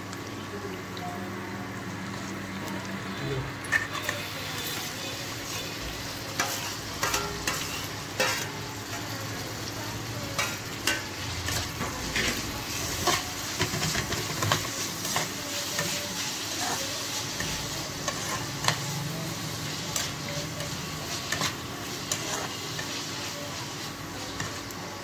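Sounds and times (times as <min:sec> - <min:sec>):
onions and tomatoes sizzling: 0:00.0 - 0:25.0
metal spatula scraping pan: 0:03.7 - 0:09.1, 0:10.3 - 0:18.9, 0:19.6 - 0:24.7.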